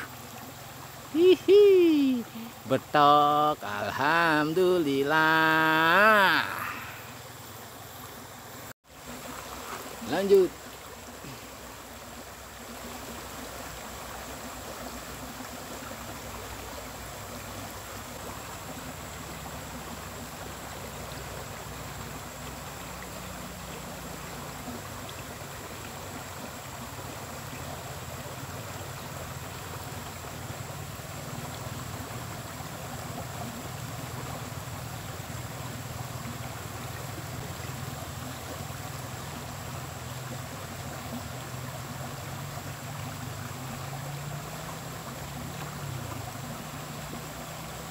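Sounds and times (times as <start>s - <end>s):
river water flowing: 0.0s - 47.9s
thin high tone: 1.1s - 7.2s.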